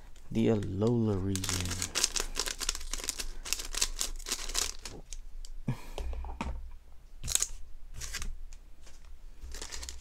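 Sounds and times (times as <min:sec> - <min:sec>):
foil wrapper crinkling: 0:00.2 - 0:05.2, 0:09.5 - 0:10.0.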